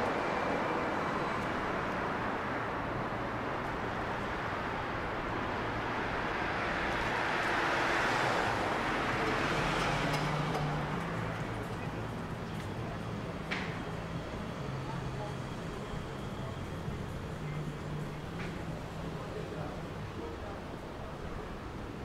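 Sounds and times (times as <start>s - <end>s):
passing cars: 0.0s - 22.0s.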